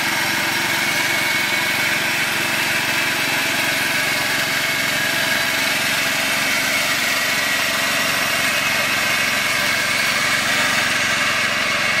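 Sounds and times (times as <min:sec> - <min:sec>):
lawn tractor engine running: 0:00.0 - 0:12.0.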